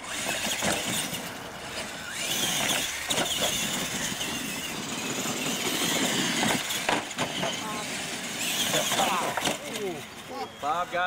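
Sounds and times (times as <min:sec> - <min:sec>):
toy truck motors whining: 0:00.0 - 0:11.0
tyres rushing on dirt: 0:00.0 - 0:11.0
knocks hitting ramps: 0:05.8 - 0:07.6, 0:08.6 - 0:09.8.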